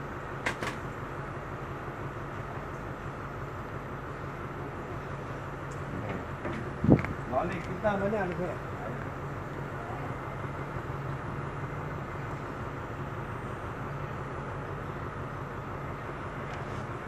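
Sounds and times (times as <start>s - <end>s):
train rumble inside carriage: 0.0s - 17.0s.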